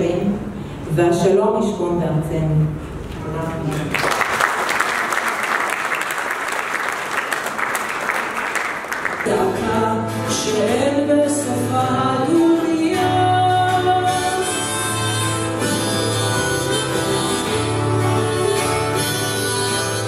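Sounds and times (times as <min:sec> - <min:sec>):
audience applause: 0:03.6 - 0:09.3
acoustic guitar music: 0:08.9 - 0:20.0.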